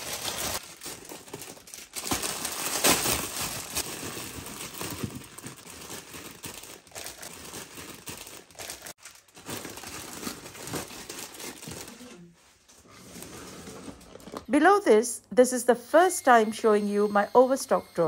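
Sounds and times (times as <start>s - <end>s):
plastic packets crinkling: 0.0s - 12.3s.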